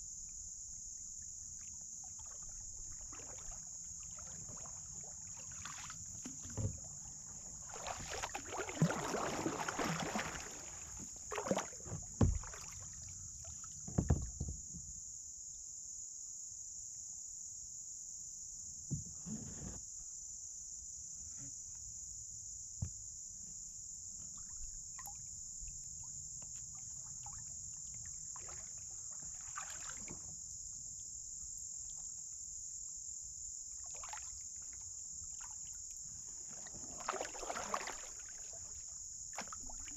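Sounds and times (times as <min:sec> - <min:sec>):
insects droning: 0:00.0 - 0:39.9
paddle strokes splashing water: 0:01.5 - 0:14.2, 0:26.4 - 0:30.3, 0:33.8 - 0:39.9
paddle knocking against hull: 0:05.6 - 0:12.8, 0:13.8 - 0:14.9, 0:18.9 - 0:19.8.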